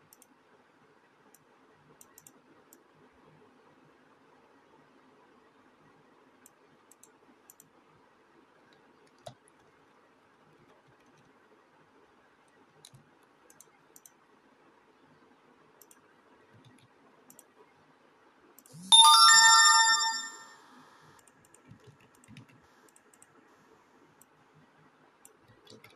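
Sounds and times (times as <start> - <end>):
small sharp clicks: 12.8 - 14.2, 15.8 - 16.0.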